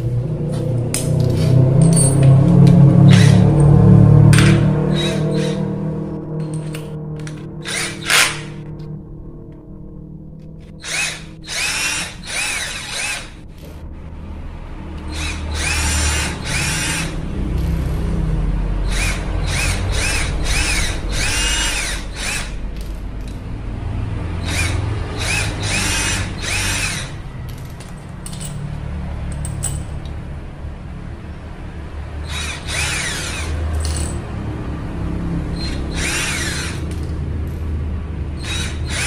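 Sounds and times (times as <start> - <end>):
cordless drill whining in bursts: 4.4 - 5.6, 7.2 - 8.6, 10.8 - 13.4, 15.1 - 17.2, 18.9 - 22.6, 24.4 - 27.2, 32.2 - 33.6, 35.6 - 36.8, 38.4 - 39.0.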